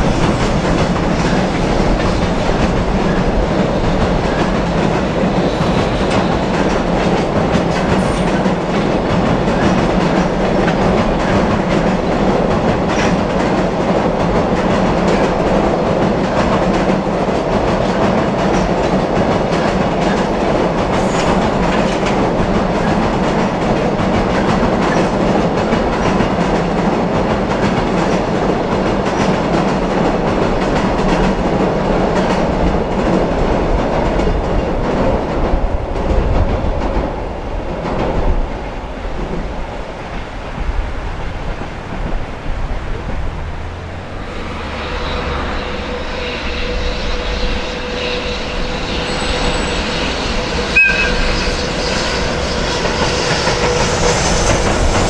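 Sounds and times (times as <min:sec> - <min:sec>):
electric locomotive steady tone: 0:00.0 - 0:55.0
train wheels clattering on bridge: 0:00.0 - 0:55.0
locomotive whistle horn: 0:44.3 - 0:54.0.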